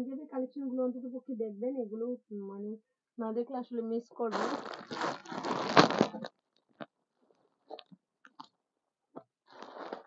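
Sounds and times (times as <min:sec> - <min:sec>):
plastic packaging crinkling: 0:04.3 - 0:06.9.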